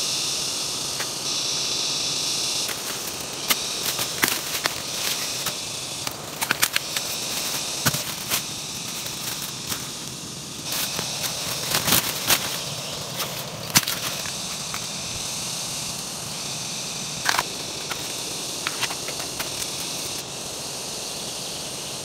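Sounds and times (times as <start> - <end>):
forest ambience hiss: 0.0 - 22.0
dry leaves and stems snapping: 2.6 - 15.2, 17.2 - 20.2.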